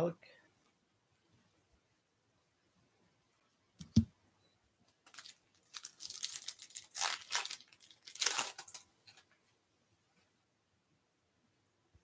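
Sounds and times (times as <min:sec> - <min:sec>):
foil wrapper crinkling and tearing: 0:05.1 - 0:09.2.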